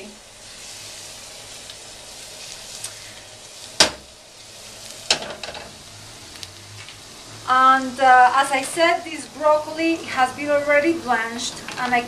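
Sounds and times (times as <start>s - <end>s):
garlic sizzling in oil: 0.0s - 12.0s
sharp knock: 3.8s - 4.1s.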